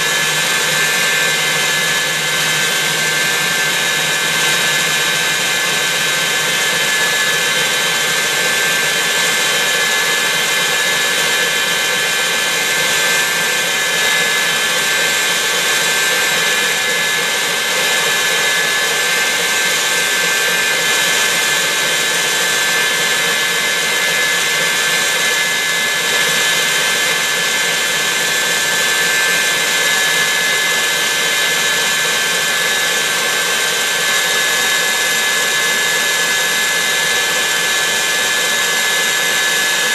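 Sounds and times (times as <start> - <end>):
stand mixer motor whining: 0.0 - 39.9
whisk beating in metal bowl: 0.0 - 39.9.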